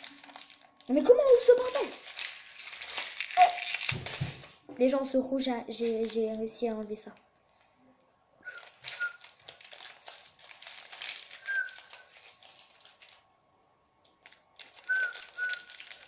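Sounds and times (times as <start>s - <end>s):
plastic packet crinkling: 0.0s - 4.7s, 5.7s - 7.7s, 8.5s - 13.3s, 14.0s - 16.0s
plastic squeaks: 2.8s - 4.4s, 8.5s - 10.2s, 10.9s - 12.6s, 14.6s - 16.0s.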